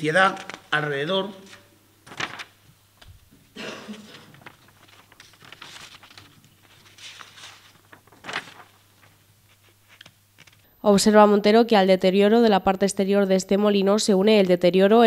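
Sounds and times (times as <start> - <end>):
photo paper sheets rustling: 0.0 - 10.7
faint electrical hum: 0.0 - 15.0.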